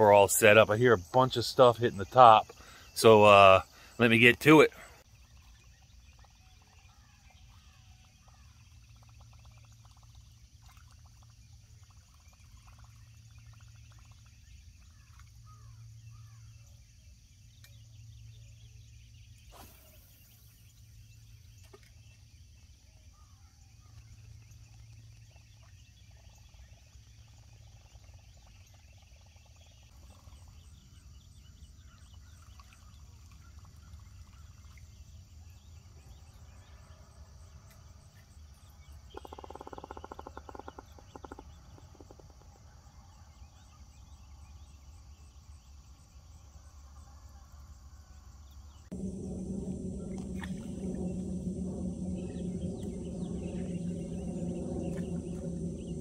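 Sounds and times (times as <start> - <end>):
low steady hum: 48.7 - 56.0.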